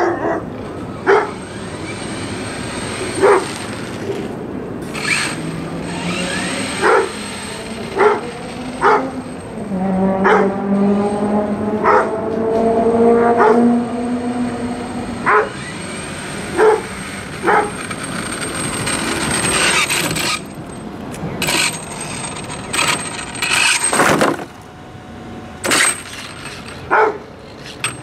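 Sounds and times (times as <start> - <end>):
dog barking: 0.0 - 1.4, 3.2 - 3.5, 6.8 - 7.2, 8.0 - 9.1, 10.2 - 10.5, 11.8 - 12.2, 13.4 - 13.6, 15.2 - 15.5, 16.6 - 17.7, 26.9 - 27.2
rc truck driving on asphalt: 0.0 - 28.0.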